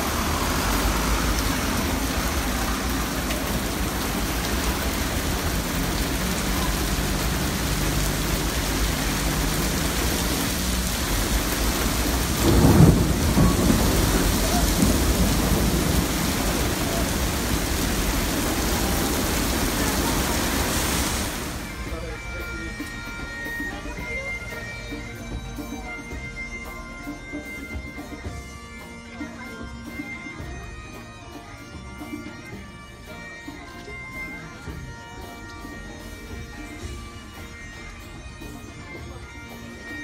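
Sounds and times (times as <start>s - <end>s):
car tyres hissing through water: 0.0s - 22.1s
heavy rain pouring: 0.0s - 24.2s.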